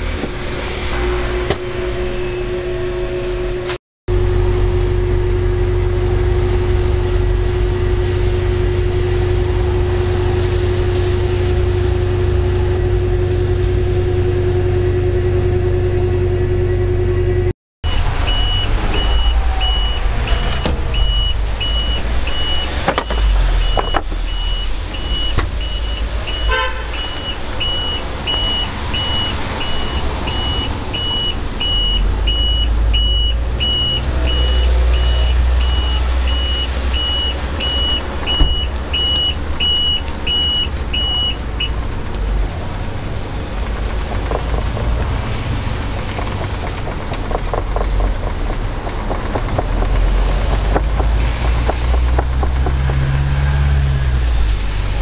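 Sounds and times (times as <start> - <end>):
machine hum with steady tone: 0.0 - 44.1
low rumble: 0.0 - 55.0
high electronic beep: 16.6 - 41.4.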